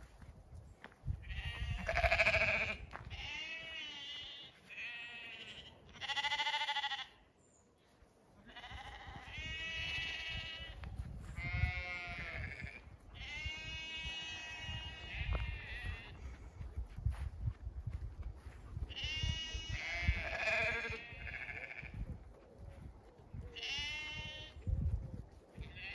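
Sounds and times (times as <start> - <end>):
sheep bleating: 1.2 - 7.2, 8.4 - 10.8, 11.4 - 16.2, 18.9 - 22.0, 23.6 - 24.6, 25.6 - 25.9.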